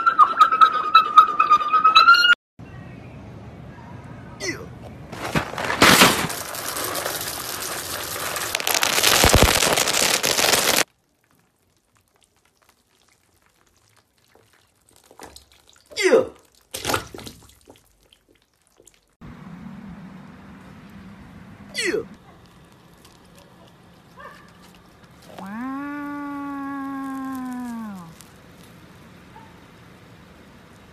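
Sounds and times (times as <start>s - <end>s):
cracker box rattling and crinkling: 5.1s - 10.9s, 22.4s - 29.0s.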